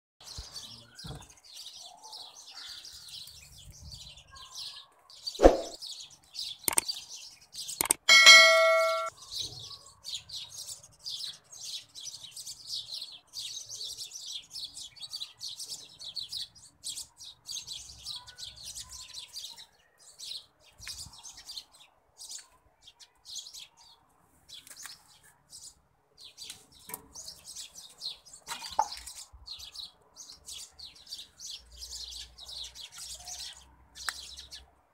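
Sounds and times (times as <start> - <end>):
small birds chirping: 0.2 - 34.9
bell-like ding: 8.1 - 9.1.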